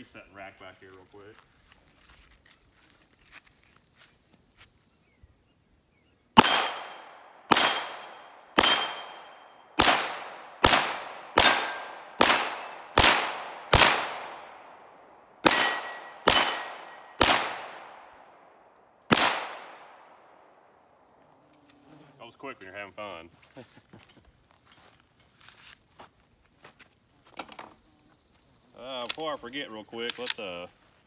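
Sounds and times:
pistol shots: 0:06.4 - 0:14.8, 0:15.4 - 0:18.1, 0:19.1 - 0:20.1
steel plates ringing: 0:11.4 - 0:12.9, 0:15.5 - 0:17.1.

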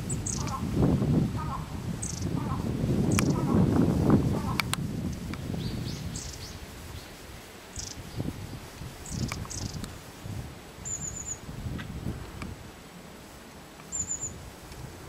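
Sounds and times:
bird high calls: 0:00.0 - 0:00.7, 0:01.4 - 0:03.7, 0:07.7 - 0:08.1, 0:09.0 - 0:09.8, 0:10.8 - 0:11.4, 0:13.9 - 0:14.4.

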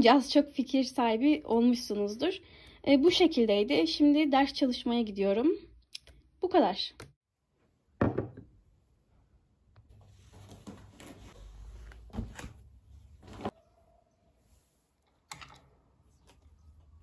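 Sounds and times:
ceramic cup knocking on desk: 0:08.0 - 0:08.5.

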